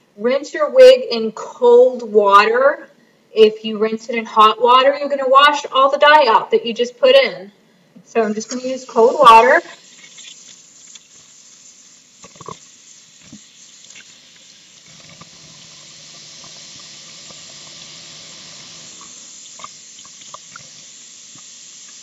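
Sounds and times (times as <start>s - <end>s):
faucet running into sink: 8.4s - 22.0s
small water splashes: 9.5s - 17.9s.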